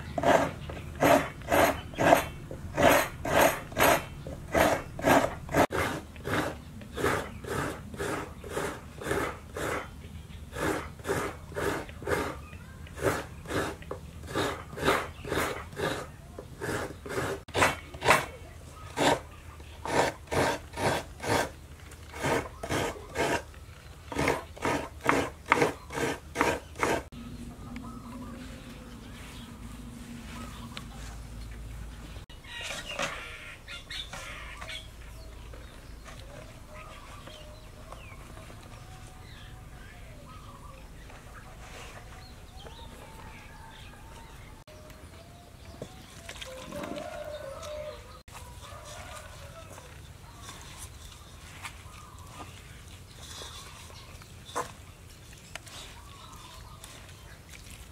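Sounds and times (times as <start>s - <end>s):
coconut rasping on grater blade: 0.0s - 9.9s, 10.5s - 18.3s, 18.9s - 23.5s, 24.1s - 27.1s
small birds calling: 0.0s - 20.4s, 21.2s - 57.9s.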